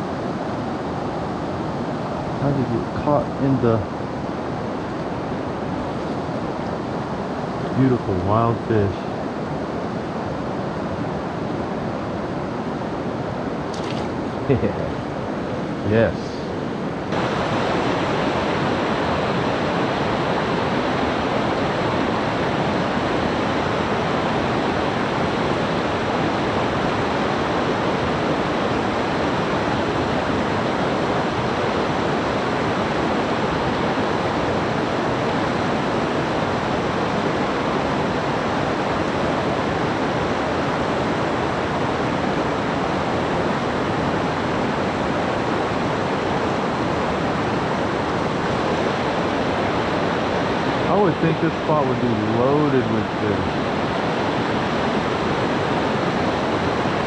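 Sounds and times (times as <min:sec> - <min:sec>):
river water rushing over rocks: 0:16.8 - 0:57.0.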